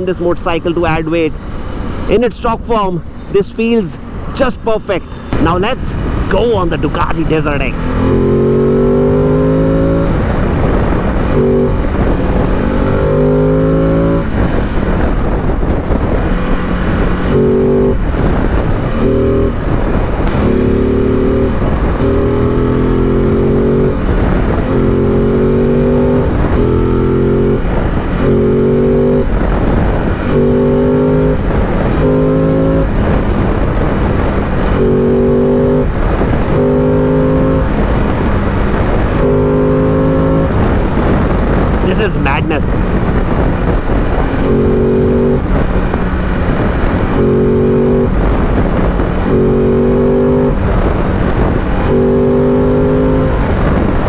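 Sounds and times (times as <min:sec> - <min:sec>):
wind and road rush: 0:00.0 - 0:54.0
motorcycle engine revving in bursts: 0:43.3 - 0:54.0.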